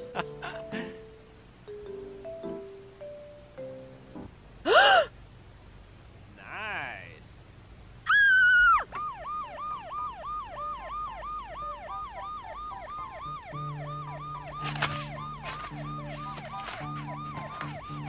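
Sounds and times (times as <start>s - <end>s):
ambulance siren yelping: 8.5s - 18.0s.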